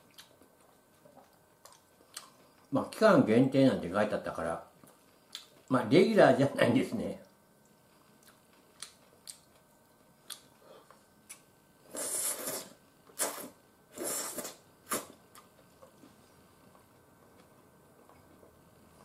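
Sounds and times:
noodles being slurped: 0:11.9 - 0:15.1.

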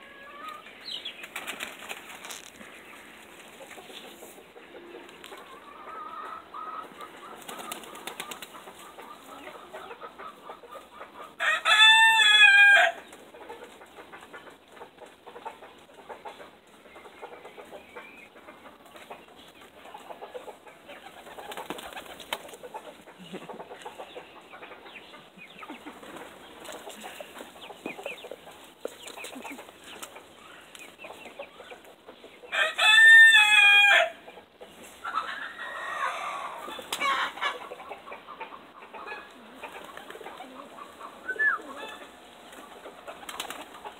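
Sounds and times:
pigeon wings flapping: 0:01.2 - 0:02.5, 0:07.4 - 0:08.6, 0:21.2 - 0:22.6, 0:42.5 - 0:43.9
rooster crowing: 0:11.4 - 0:13.0, 0:32.5 - 0:34.2
bird calls: 0:39.0 - 0:42.7.

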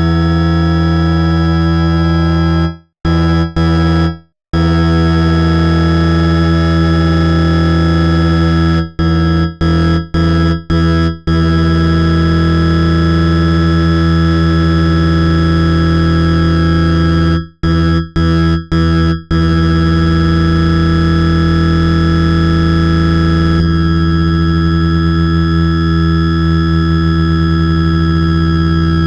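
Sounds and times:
loud synthesized drone tones: 0:00.0 - 0:07.7.

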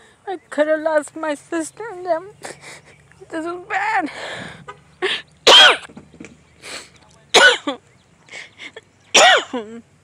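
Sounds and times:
woman sobbing: 0:04.0 - 0:05.3.

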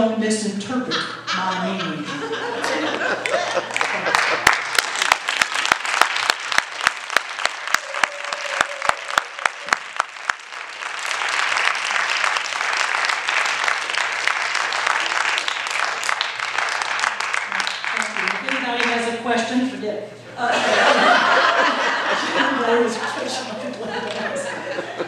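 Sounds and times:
audience applause: 0:02.6 - 0:18.9
sharp claps near microphone: 0:03.2 - 0:19.0.

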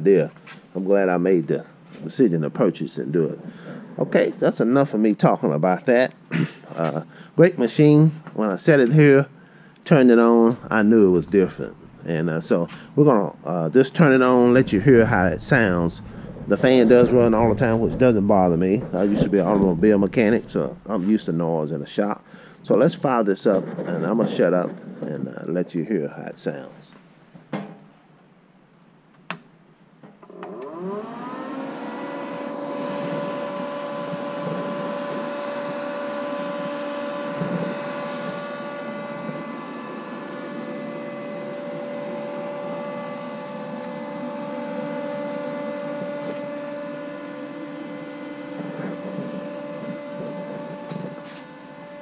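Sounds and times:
cooling fan humming: 0:06.3 - 0:22.8, 0:30.8 - 0:52.0.

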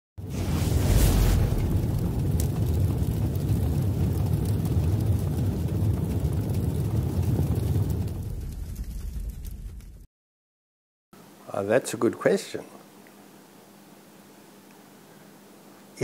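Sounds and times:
low rumbling sound effect: 0:00.2 - 0:10.0.

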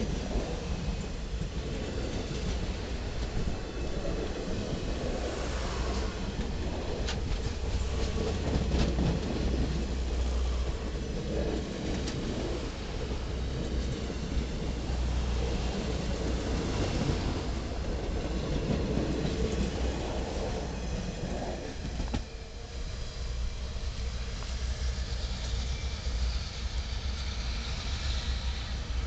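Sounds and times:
train wheels clicking: 0:00.0 - 0:22.3
train wheels rumbling on rails: 0:00.0 - 0:29.0.

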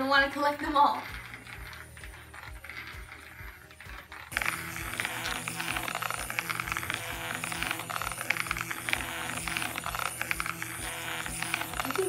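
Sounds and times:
toy motor whirring: 0:00.0 - 0:12.0
wheels rattling on plastic track: 0:00.0 - 0:12.0.

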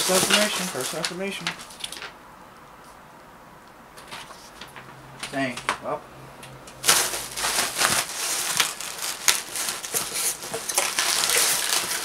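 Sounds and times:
packing peanuts rustling: 0:00.0 - 0:02.2, 0:06.8 - 0:12.0
plastic wrapping crinkling: 0:00.0 - 0:02.2, 0:06.8 - 0:12.0.

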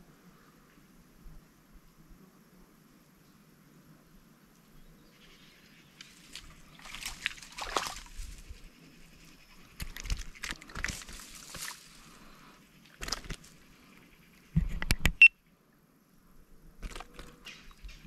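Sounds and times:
water sloshing and splashing: 0:06.2 - 0:08.4, 0:09.8 - 0:12.0.

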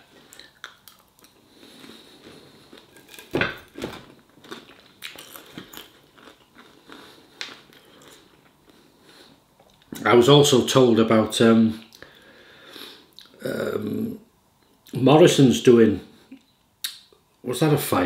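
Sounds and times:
man chewing food: 0:00.0 - 0:10.0.

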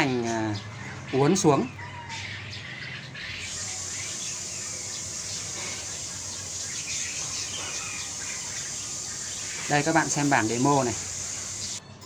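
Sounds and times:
small birds chirping: 0:00.0 - 0:12.0
high-pitched insect drone: 0:03.5 - 0:11.8.

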